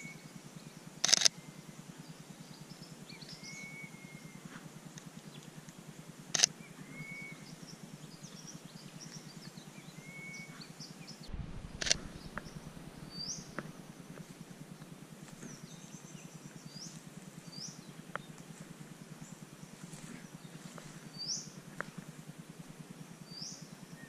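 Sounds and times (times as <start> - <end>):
small birds chirping: 0.0 - 5.7, 6.4 - 22.1
sharp clicks: 1.0 - 1.3, 6.3 - 6.5, 11.7 - 12.6
rising whistled bird notes: 6.8 - 7.5
brief low rumble: 11.2 - 14.7.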